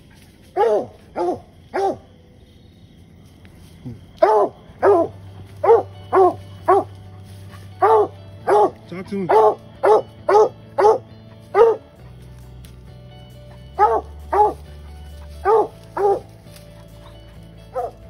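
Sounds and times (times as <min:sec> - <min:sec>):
dog barking: 0:00.5 - 0:02.1, 0:04.2 - 0:07.0, 0:07.8 - 0:12.0, 0:13.6 - 0:18.0.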